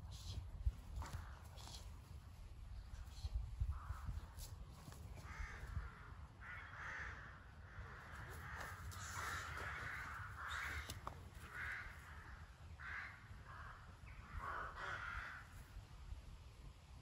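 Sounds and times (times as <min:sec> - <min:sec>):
crows cawing: 0:03.7 - 0:04.4, 0:05.0 - 0:15.7.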